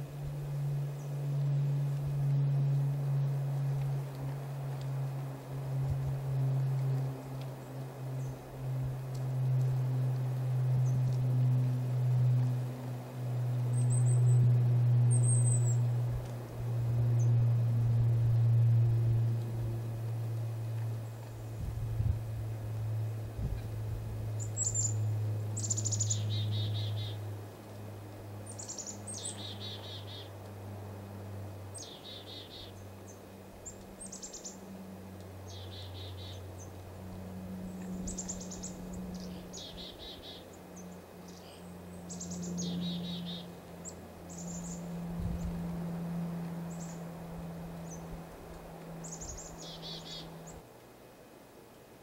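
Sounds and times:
steady low hum: 0.0 - 52.0
chickadee calls: 28.5 - 30.3, 35.5 - 36.7, 37.9 - 44.9, 49.0 - 50.6.

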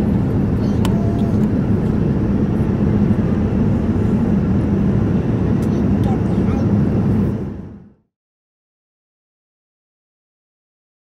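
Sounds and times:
airplane cabin rumble: 0.0 - 8.1.

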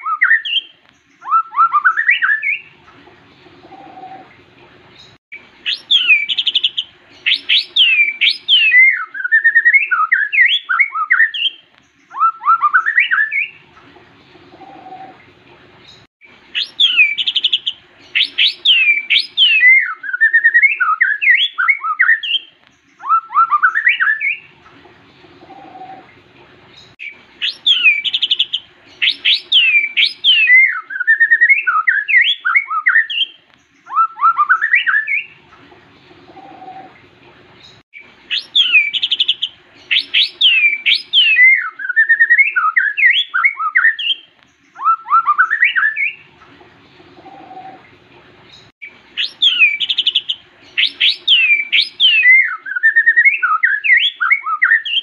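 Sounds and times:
songbird singing: 0.0 - 55.0.

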